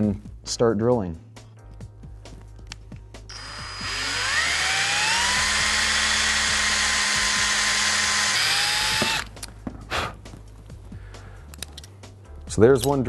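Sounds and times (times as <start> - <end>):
cordless drill whine: 3.3 - 9.3.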